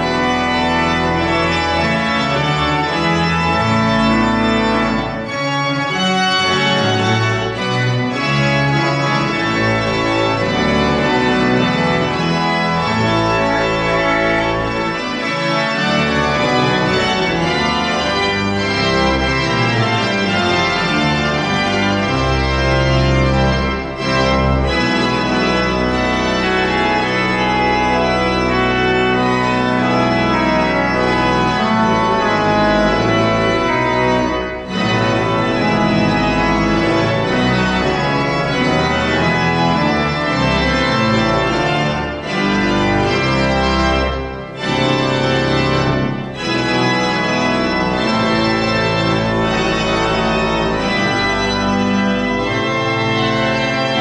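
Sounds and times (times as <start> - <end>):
church pipe organ chords: 0.0 - 54.0.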